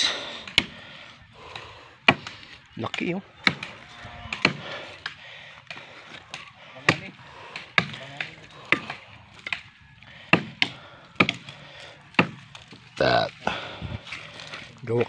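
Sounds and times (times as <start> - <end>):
blade chopping tree trunk: 0.4 - 0.8, 2.0 - 13.0.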